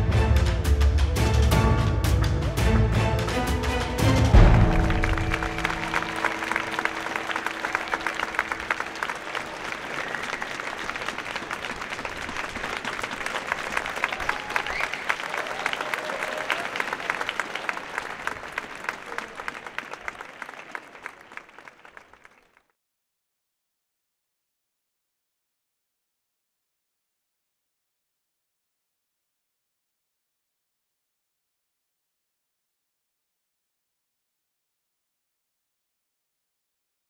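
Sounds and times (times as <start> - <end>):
audience clapping: 2.9 - 22.7.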